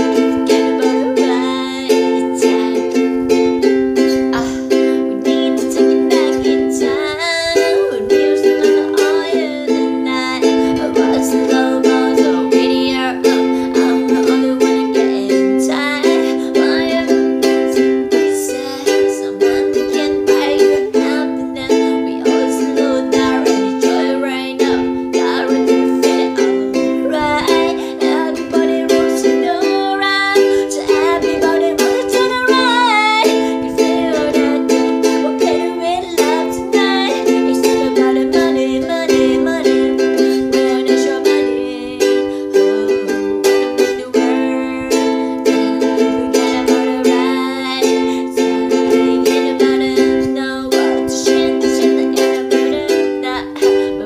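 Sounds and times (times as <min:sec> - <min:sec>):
ukulele strumming chords: 0:00.0 - 0:54.0.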